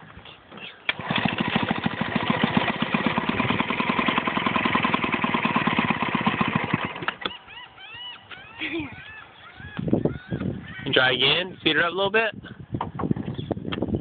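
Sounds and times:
outboard motor putter: 0.9 - 7.5.

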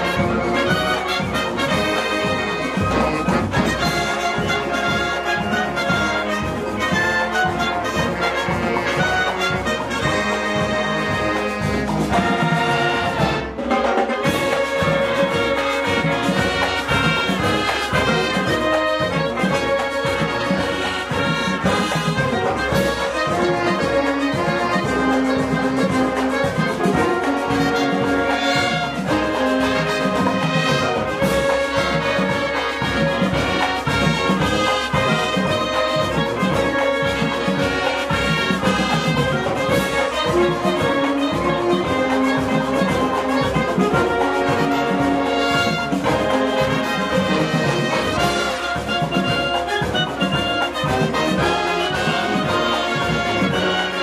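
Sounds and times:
marching band playing brass: 0.0 - 54.0.

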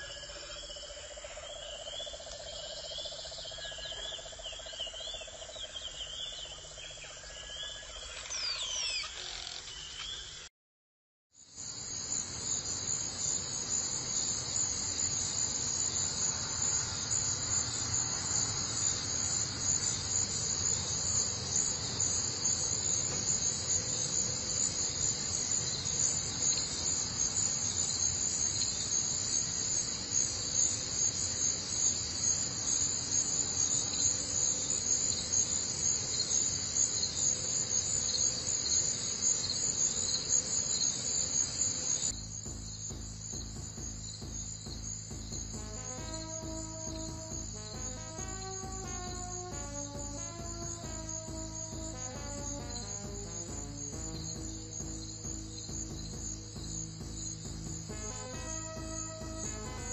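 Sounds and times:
insects buzzing shrilly: 7.2 - 10.4, 11.6 - 59.9.

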